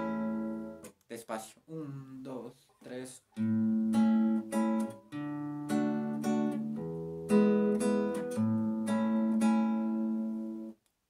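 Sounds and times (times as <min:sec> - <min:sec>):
classical guitar fingerstyle waltz: 0:00.0 - 0:00.9, 0:03.4 - 0:10.8.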